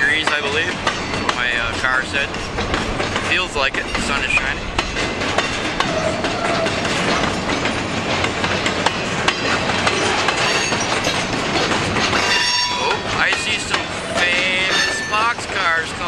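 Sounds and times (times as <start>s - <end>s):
freight cars rumbling and rattling: 0.0s - 16.0s
wheels clicking over rail joints: 0.0s - 16.0s
high wheel squeal: 10.0s - 11.2s, 12.2s - 13.1s, 14.1s - 15.3s.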